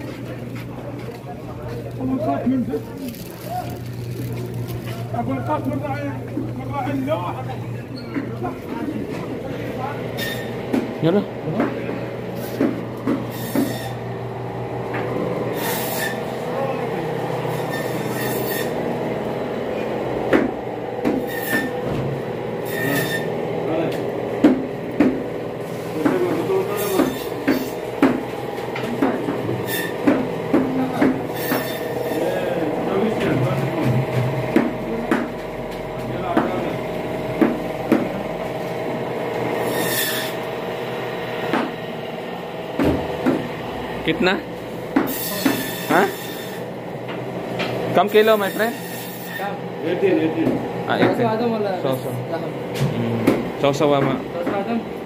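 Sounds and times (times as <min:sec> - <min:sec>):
mechanical hum with high whine: 0:00.0 - 0:55.0
sharp knocks: 0:20.3 - 0:22.1, 0:24.4 - 0:25.2, 0:26.9 - 0:31.7, 0:33.8 - 0:35.5, 0:37.4 - 0:38.2, 0:41.5 - 0:41.8, 0:42.8 - 0:43.5.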